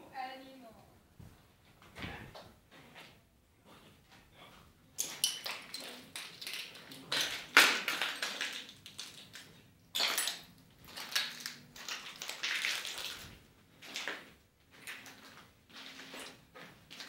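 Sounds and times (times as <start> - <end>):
sharp crack: 5.9 - 9.5
footsteps crunching on debris: 10.8 - 17.0.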